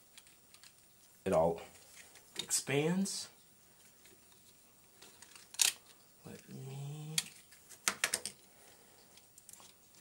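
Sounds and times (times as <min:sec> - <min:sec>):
plastic figure parts clicking: 0:05.2 - 0:05.8.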